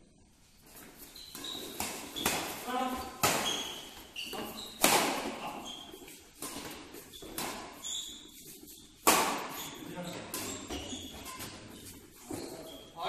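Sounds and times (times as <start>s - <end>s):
shoes squeaking on court: 0.7s - 13.0s
rackets smacking shuttlecock: 1.3s - 8.3s, 9.0s - 11.6s.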